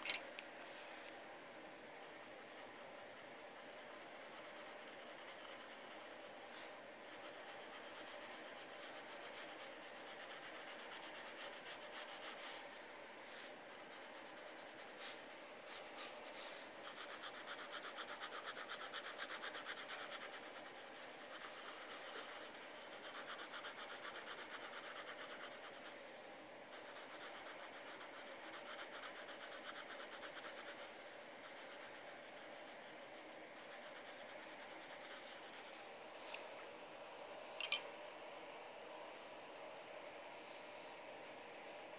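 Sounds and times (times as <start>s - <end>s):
pencil scratching on paper: 2.0s - 12.5s, 13.7s - 25.9s, 26.7s - 35.8s.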